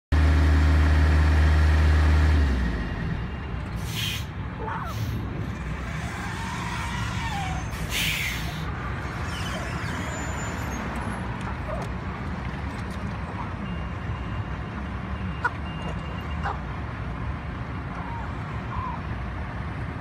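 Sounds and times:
air hiss: 3.8 - 4.3, 7.9 - 8.7.

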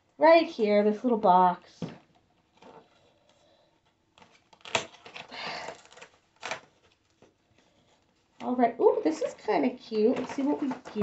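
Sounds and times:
cardboard scraping rustle: 2.3 - 8.3
cardboard clicks and snaps: 4.2 - 7.4.

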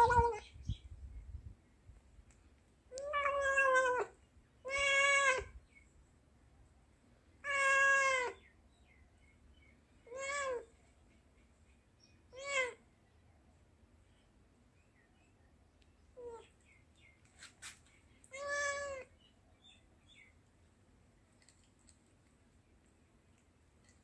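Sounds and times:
cat meowing: 2.9 - 5.6, 7.4 - 8.4, 10.1 - 10.7, 12.3 - 12.8, 18.2 - 19.1.

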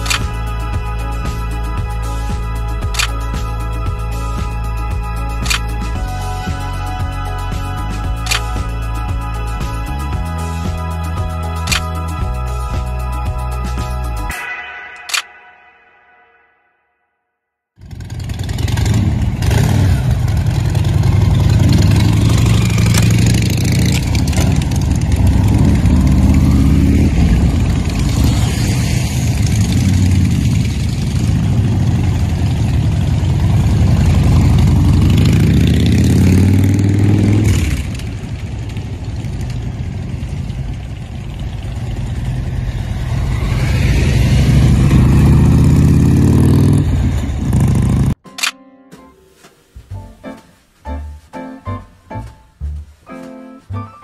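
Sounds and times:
motorcycle engines revving: 17.8 - 48.2.

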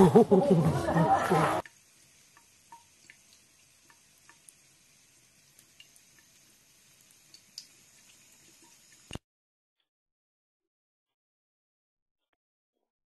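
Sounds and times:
tap water trickling into sink: 1.6 - 4.7, 7.0 - 9.2
small water drips: 1.6 - 9.2.

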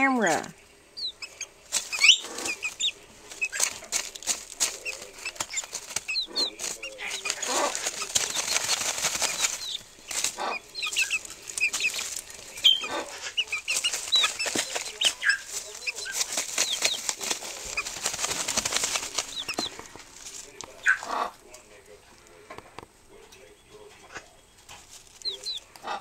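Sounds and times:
chickens rustling and scratching: 0.0 - 26.0
chicks peeping: 0.0 - 26.0
wings fluttering: 1.0 - 21.2.

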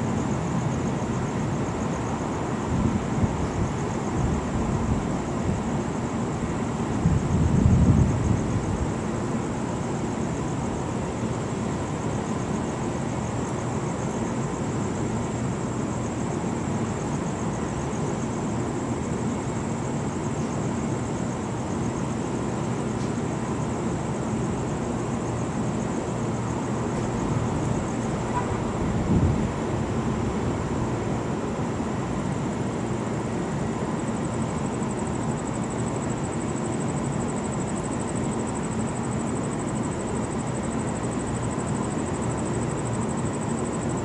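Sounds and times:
distant city traffic rumble: 16.2 - 43.9.

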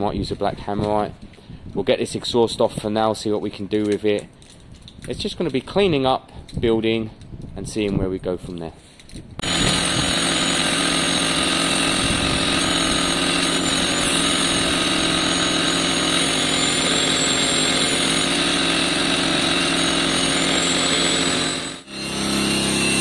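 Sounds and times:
rotary tool grinding metal: 9.4 - 23.0.

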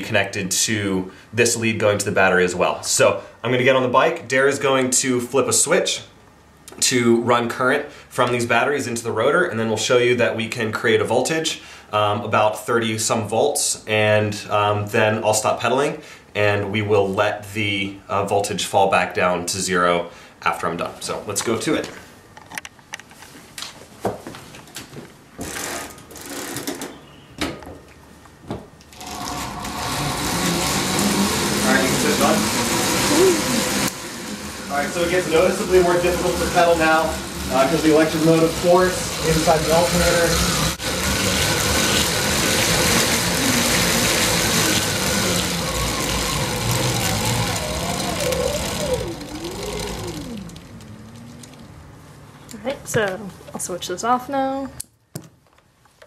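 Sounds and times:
clicks and knocks of bicycle: 24.7 - 27.9
wheel and alternator whirring: 28.9 - 52.4.

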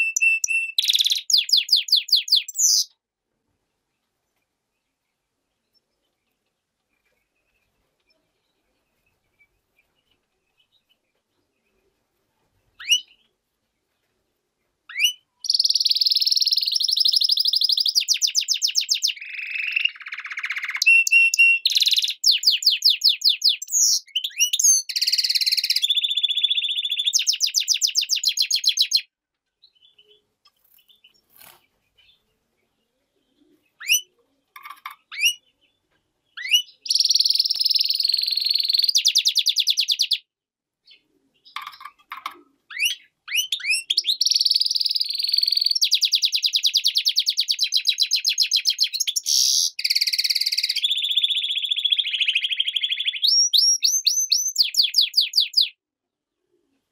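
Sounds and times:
finch singing fast trills: 0.0 - 2.9, 14.9 - 29.0, 42.7 - 55.7
single bird chirps: 0.0 - 3.0, 12.8 - 13.3, 14.9 - 29.0, 33.3 - 35.5.

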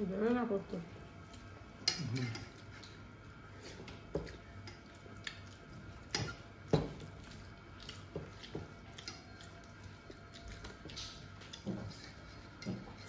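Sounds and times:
eating smacks and clicks: 3.8 - 6.4, 7.0 - 13.0.

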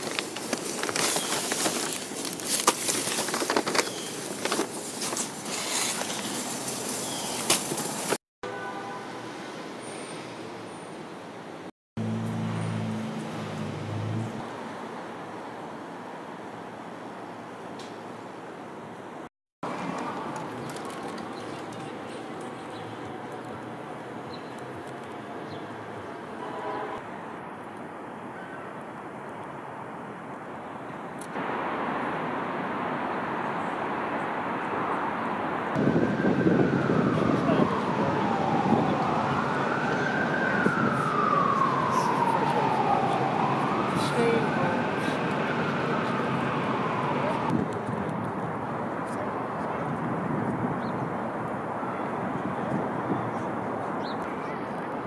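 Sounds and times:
bags rustling and crinkling: 0.0 - 8.2
traffic hum: 0.0 - 55.0.

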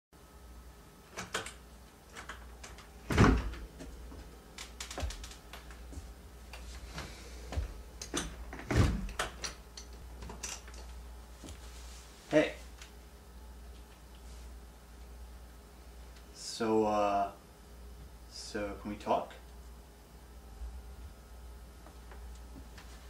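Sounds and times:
heavy door thuds: 3.0 - 3.9, 7.5 - 9.3
door knob and lock rattling: 4.6 - 5.4.

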